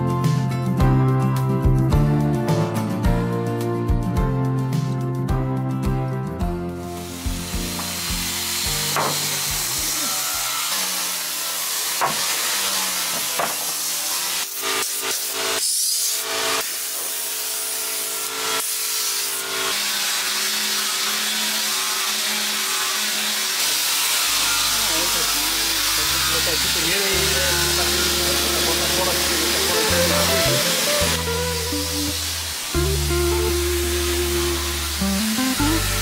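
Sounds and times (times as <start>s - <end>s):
woodworking hiss: 6.8s - 36.0s
sharp knocks: 8.9s - 9.3s, 12.0s - 12.2s, 13.4s - 13.7s.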